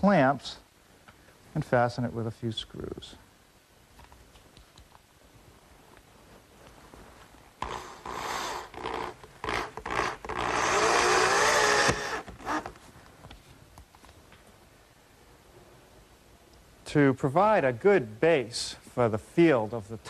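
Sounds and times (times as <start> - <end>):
power drill driving screws: 7.6 - 12.8.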